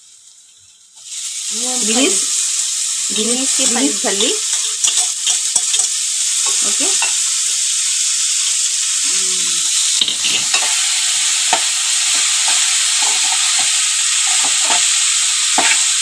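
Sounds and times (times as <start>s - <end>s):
vegetables sizzling in oil: 0.0s - 16.0s
metal ladle scraping pot: 9.0s - 15.0s.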